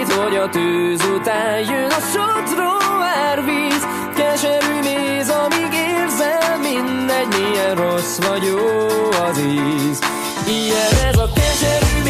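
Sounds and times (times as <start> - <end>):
melody over a beat: 0.0 - 12.0.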